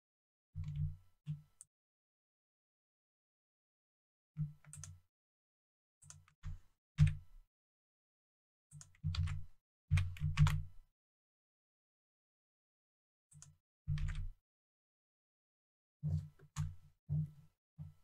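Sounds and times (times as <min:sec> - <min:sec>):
keyboard and mouse clicks: 0:04.4 - 0:05.0, 0:06.0 - 0:07.3, 0:08.7 - 0:10.7.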